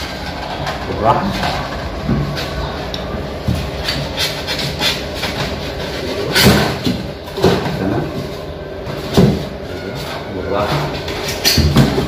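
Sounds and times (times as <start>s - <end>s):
plastic cover rubbing and scraping: 3.6s - 12.0s.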